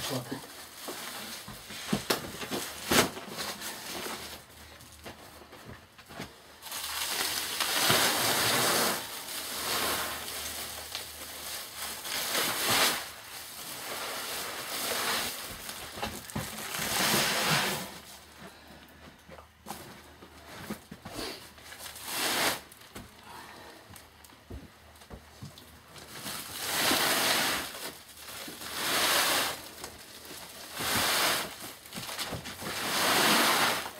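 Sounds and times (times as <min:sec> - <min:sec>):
sack cloth rustling and scraping: 0:32.6 - 0:33.9.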